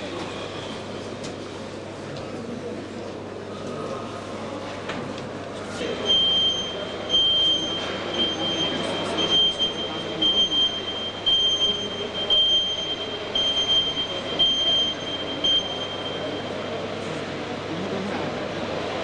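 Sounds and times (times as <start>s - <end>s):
crowd murmuring: 0.0s - 19.0s
vehicle backup beeper: 5.9s - 17.0s.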